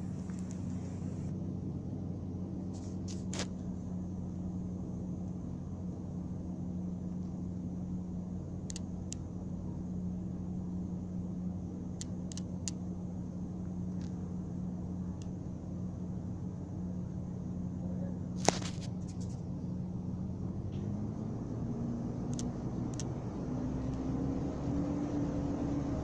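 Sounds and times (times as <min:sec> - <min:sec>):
steady low hum: 0:00.0 - 0:26.0
sharp click: 0:08.7 - 0:09.3, 0:12.0 - 0:12.8, 0:22.3 - 0:23.1.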